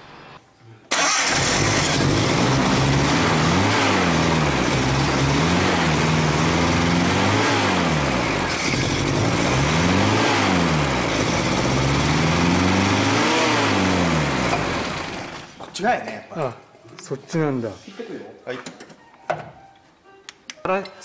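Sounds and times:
car engine revs swinging: 0.9 - 15.5.

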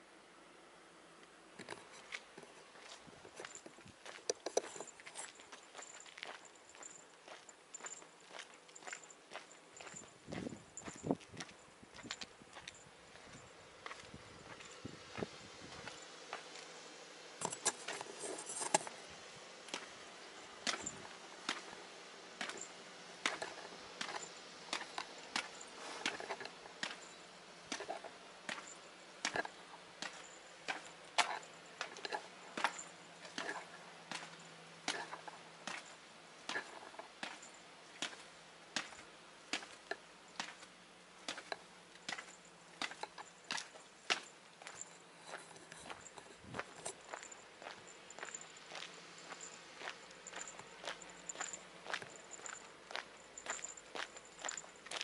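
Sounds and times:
light clicking and jingling: 1.6 - 55.0
footsteps on concrete stairs: 27.7 - 55.0.

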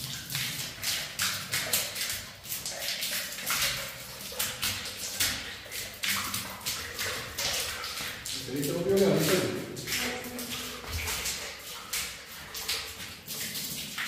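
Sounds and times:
water splashing on concrete floor: 0.0 - 14.0.

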